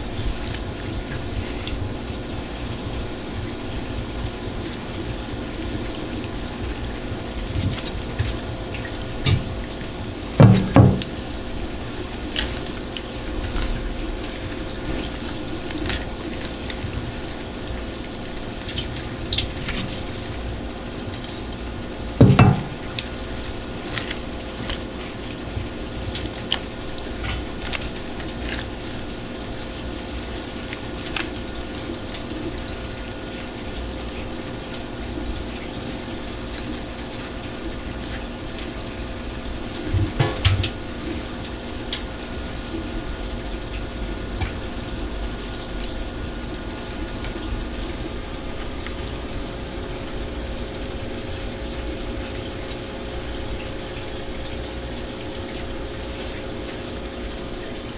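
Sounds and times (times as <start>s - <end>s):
faint steady hum: 0.0s - 57.9s
wet squelching of fish innards: 0.2s - 38.8s
thuds in metal sink: 10.4s - 11.1s, 22.2s - 22.8s, 40.0s - 40.6s.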